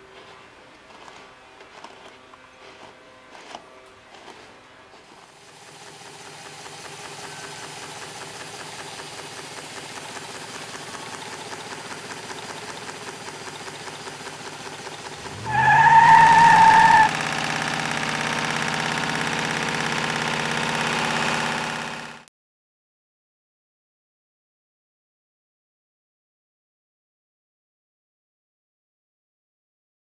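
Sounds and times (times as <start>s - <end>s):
motor whir with high whine: 0.0s - 15.5s
stirling engine ticking: 5.0s - 22.3s.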